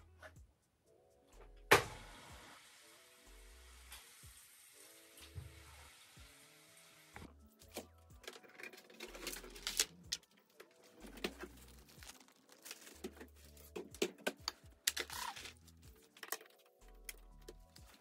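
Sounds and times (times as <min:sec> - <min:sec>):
soft background music: 0:00.0 - 0:18.0
plastic packaging crinkling: 0:08.8 - 0:13.7, 0:14.8 - 0:16.7.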